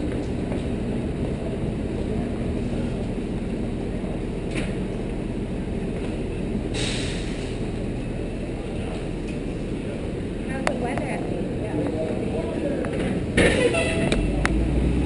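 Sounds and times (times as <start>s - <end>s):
low indoor background rumble: 0.0s - 15.0s
short burst of hiss: 6.8s - 7.5s.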